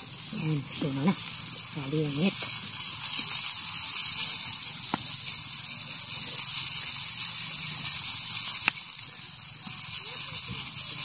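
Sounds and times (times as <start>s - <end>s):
fire crackles: 0.0s - 11.0s
sap sizzling in pot: 0.0s - 11.0s.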